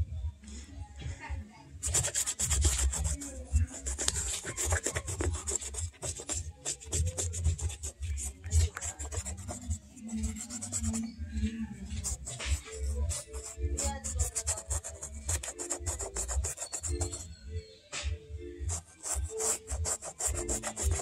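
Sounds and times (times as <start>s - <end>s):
toothbrush scrubbing suede: 1.8s - 11.0s, 12.0s - 17.2s, 18.7s - 21.0s.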